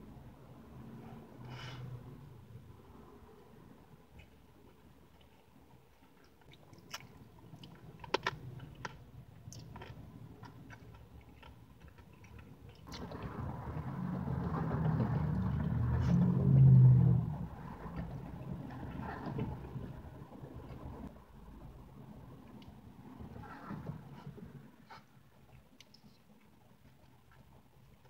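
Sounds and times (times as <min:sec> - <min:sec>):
vehicle rumble: 0:00.0 - 0:28.0
mouth clicks of chewing: 0:25.8 - 0:26.5.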